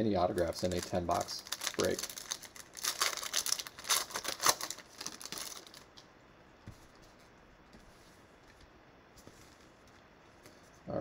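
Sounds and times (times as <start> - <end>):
foil wrapper tearing and crinkling: 0.4 - 6.0.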